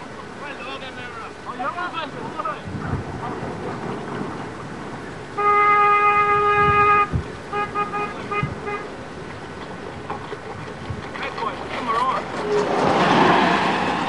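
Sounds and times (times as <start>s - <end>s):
vehicle horn short toots: 5.4s - 8.9s
vehicle horn blast: 5.4s - 9.0s.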